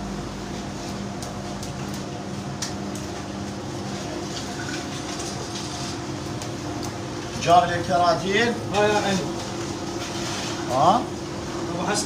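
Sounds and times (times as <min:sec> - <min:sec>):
mechanical hum: 0:00.0 - 0:12.0.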